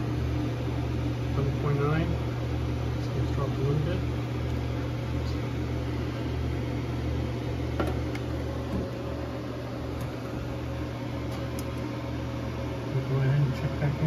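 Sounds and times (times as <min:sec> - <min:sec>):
fan noise: 0:00.0 - 0:14.0
low electrical hum: 0:00.0 - 0:14.0.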